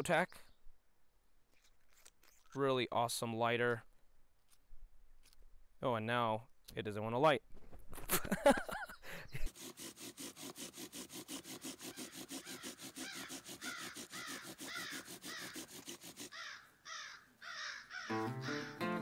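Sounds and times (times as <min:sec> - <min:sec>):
bird chattering call: 0:12.0 - 0:15.6.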